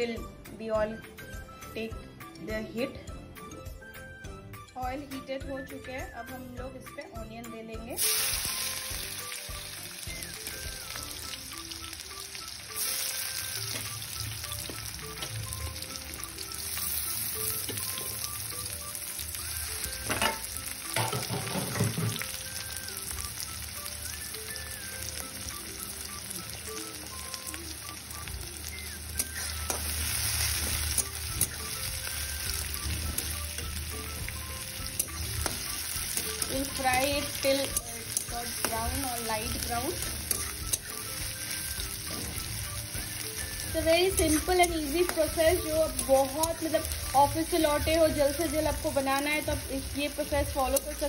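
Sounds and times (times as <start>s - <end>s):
onions sizzling in oil: 8.0s - 51.0s.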